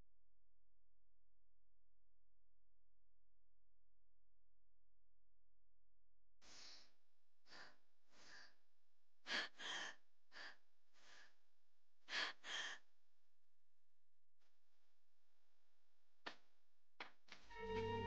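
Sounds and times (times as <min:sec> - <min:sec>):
woman breathing hard: 0:06.4 - 0:08.6, 0:09.3 - 0:11.4, 0:12.1 - 0:12.9
woman gasping: 0:12.1 - 0:12.8.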